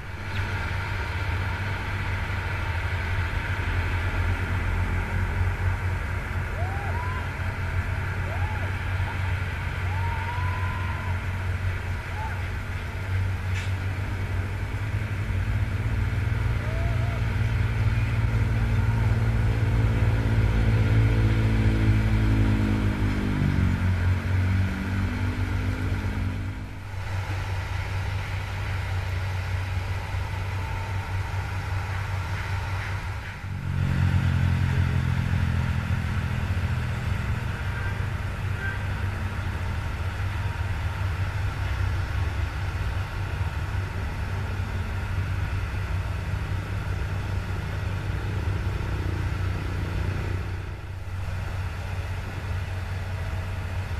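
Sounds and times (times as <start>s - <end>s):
excavator diesel engine running: 0.0s - 53.9s.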